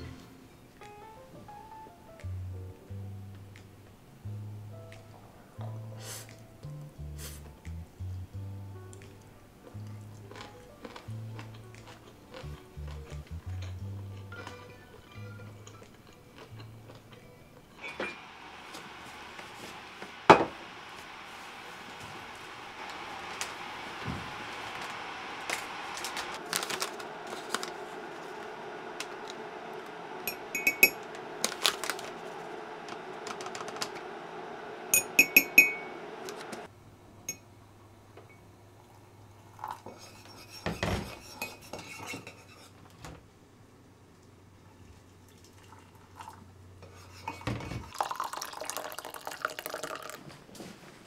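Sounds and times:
low steady hum: 0:00.0 - 0:50.2
metal spoon clinking in ceramic mug: 0:30.3 - 0:31.0, 0:35.0 - 0:35.9.

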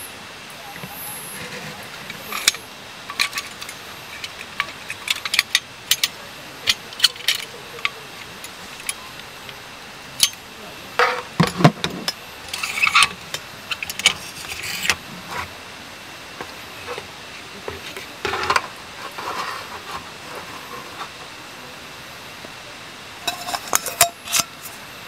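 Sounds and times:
camping gear clicks and clinks: 0:01.5 - 0:09.0
rustling: 0:16.4 - 0:21.4.

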